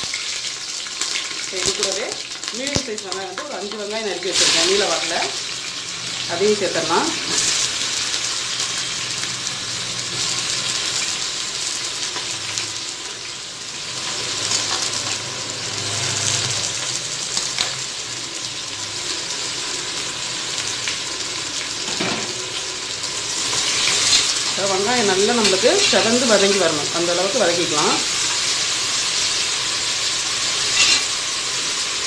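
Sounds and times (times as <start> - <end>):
onions sizzling in oil: 0.0 - 32.0
spatula stirring: 30.7 - 31.1.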